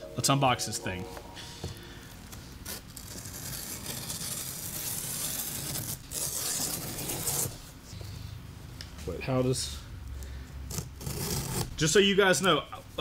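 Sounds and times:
blade slitting packing tape: 0:02.6 - 0:07.6, 0:10.7 - 0:11.8.

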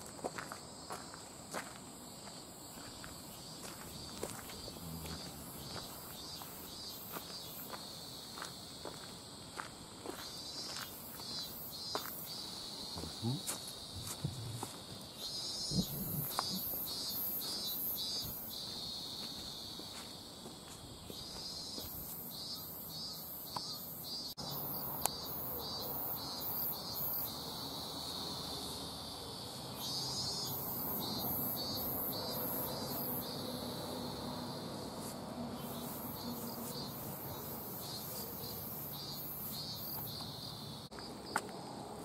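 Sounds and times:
insects pulsing trill: 0:00.0 - 0:42.0
insects steady high buzz: 0:00.0 - 0:42.0.

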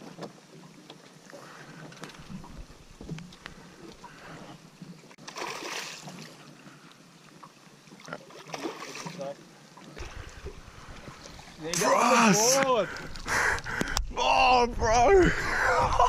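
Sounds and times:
water lapping at boat hull: 0:00.0 - 0:14.1
fish splashing: 0:01.4 - 0:06.5, 0:08.0 - 0:09.2.

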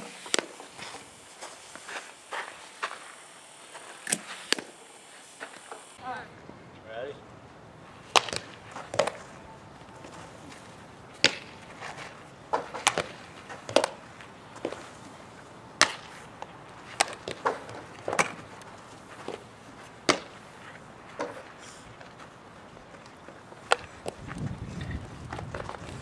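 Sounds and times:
bat hitting softball: 0:08.0 - 0:09.4, 0:11.2 - 0:14.8, 0:15.8 - 0:18.4, 0:20.0 - 0:20.4, 0:23.6 - 0:24.2.

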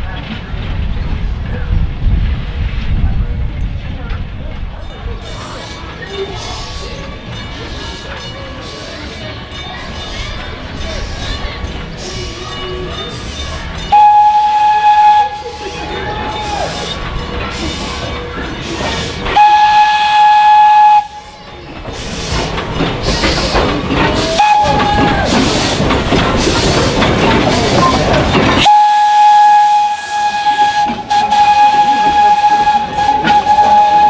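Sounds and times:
loud steam hissing: 0:05.2 - 0:34.0
steam locomotive whistle blasts: 0:13.9 - 0:15.7, 0:19.4 - 0:21.4, 0:24.2 - 0:25.4, 0:28.6 - 0:34.0.

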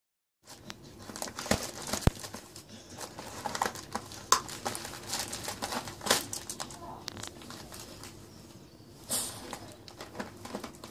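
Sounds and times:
wrapping paper crinkling and tearing: 0:00.5 - 0:08.2.

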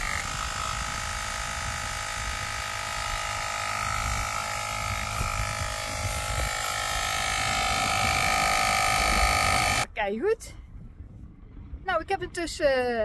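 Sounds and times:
electric tyre pump whining: 0:00.0 - 0:09.9.

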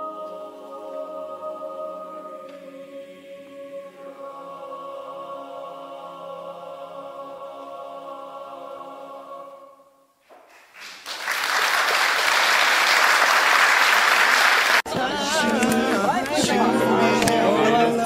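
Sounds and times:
choir holding a chord: 0:00.0 - 0:10.1, 0:14.9 - 0:18.0
audience applauding: 0:10.4 - 0:14.9
group of people's voices: 0:14.8 - 0:18.0.

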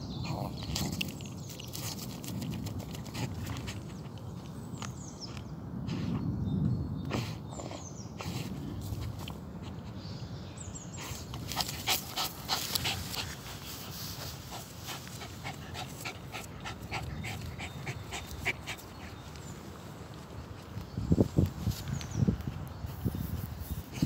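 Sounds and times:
dog panting and snuffling: 0:00.3 - 0:04.4, 0:07.1 - 0:10.0, 0:11.0 - 0:20.9
scraping in loose soil: 0:00.3 - 0:06.2, 0:10.9 - 0:24.0
dog sniffing: 0:11.0 - 0:19.6.

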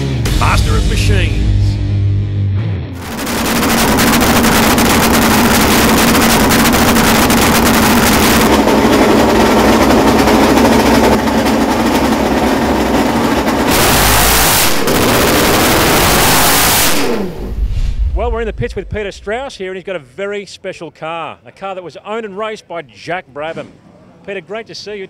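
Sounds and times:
racing engine running: 0:03.0 - 0:19.5.

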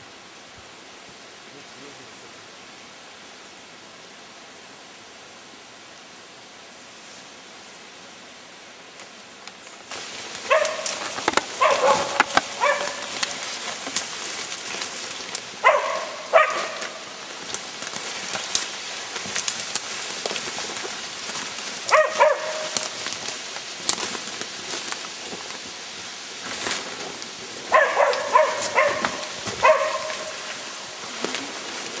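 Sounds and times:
rustling brush and footsteps: 0:08.6 - 0:32.0
dog barking: 0:10.4 - 0:13.2, 0:15.6 - 0:17.1, 0:21.9 - 0:22.9, 0:27.7 - 0:30.6.

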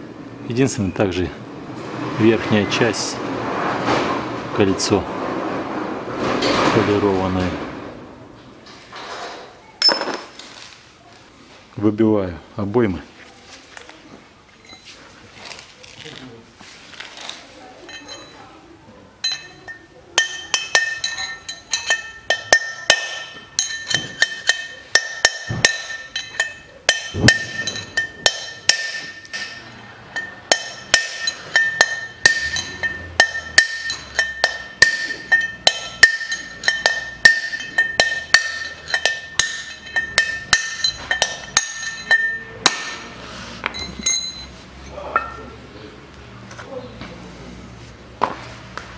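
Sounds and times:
metal hub ringing: 0:17.9 - 0:18.4, 0:19.2 - 0:45.6
hammer striking steel drift: 0:19.3 - 0:44.4.

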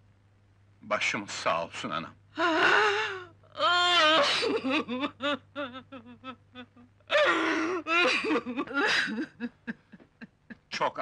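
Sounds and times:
woman wailing and sobbing: 0:02.4 - 0:10.7.

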